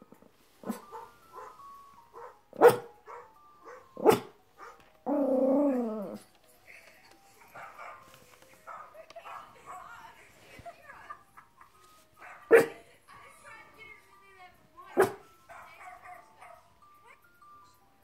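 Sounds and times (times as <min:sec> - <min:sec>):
recorded dog barks: 0:00.6 - 0:01.6, 0:02.2 - 0:04.8, 0:07.5 - 0:08.1, 0:08.7 - 0:10.0, 0:12.2 - 0:12.8, 0:14.9 - 0:16.7
drawn-out dog cry: 0:02.2 - 0:06.2.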